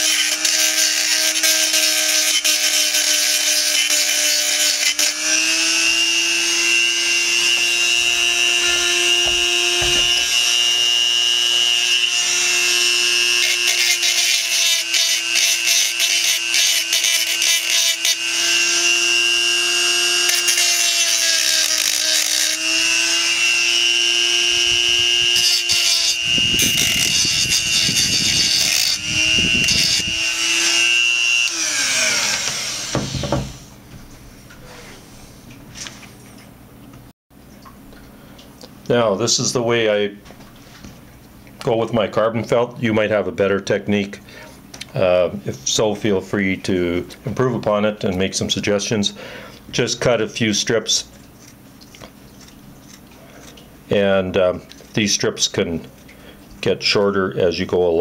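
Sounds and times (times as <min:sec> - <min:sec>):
rotary tool whine: 0:00.0 - 0:33.8
stone grinding metal: 0:07.2 - 0:10.7.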